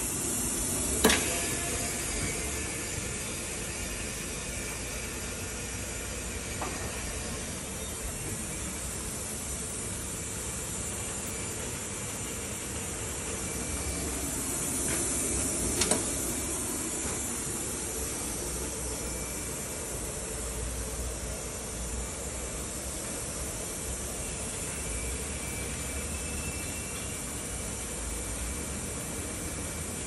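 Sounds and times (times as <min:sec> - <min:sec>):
steady hissing: 0:00.0 - 0:30.0.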